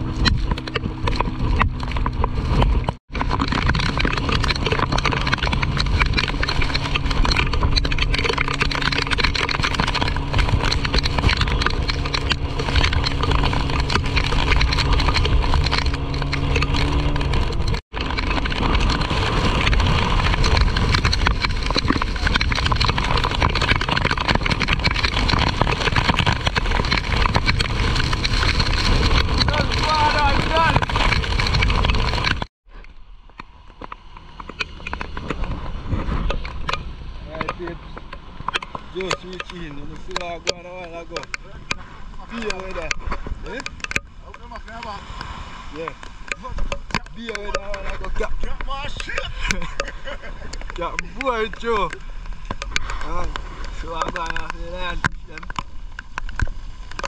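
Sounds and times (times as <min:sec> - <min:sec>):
wind and water rushing: 0:00.0 - 0:32.5, 0:41.6 - 0:57.0
boat engine running: 0:00.0 - 0:45.0.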